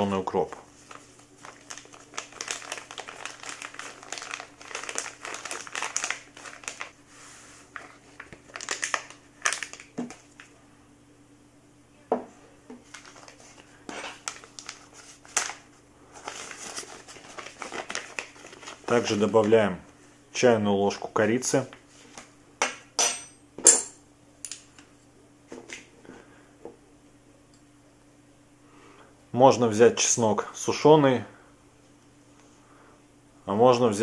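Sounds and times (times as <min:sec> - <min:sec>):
paper packets crinkling: 0:00.7 - 0:07.0, 0:07.6 - 0:10.5, 0:12.8 - 0:19.7.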